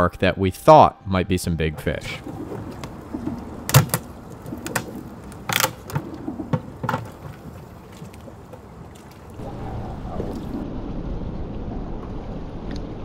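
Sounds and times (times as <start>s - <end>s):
low background rumble: 1.3s - 13.0s
crab shell cracking: 3.6s - 6.5s.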